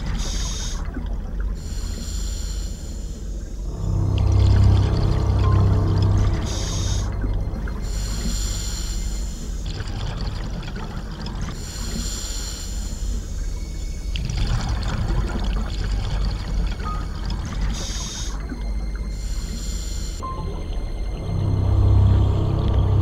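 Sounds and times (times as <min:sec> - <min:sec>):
regulator breathing hiss: 0:01.6 - 0:03.4, 0:07.8 - 0:09.6, 0:11.6 - 0:13.1
low underwater rumble: 0:03.1 - 0:12.1, 0:12.7 - 0:23.0.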